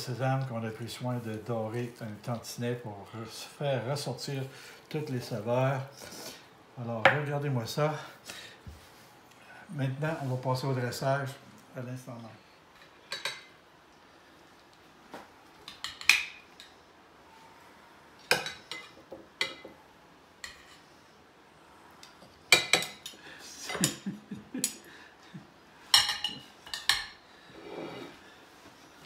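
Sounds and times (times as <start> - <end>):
metal spoons clinking on dishes: 25.9 - 27.2.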